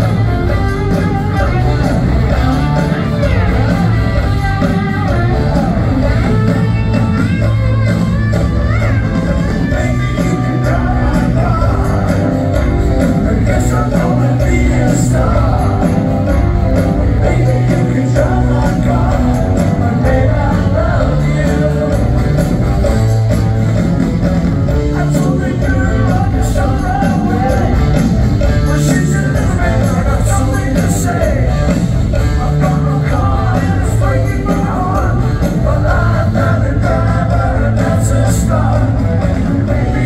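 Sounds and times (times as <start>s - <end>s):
electric guitar: 0.0s - 40.0s
live rock band playing: 0.0s - 40.0s
lead singing: 9.3s - 23.0s, 24.8s - 40.0s.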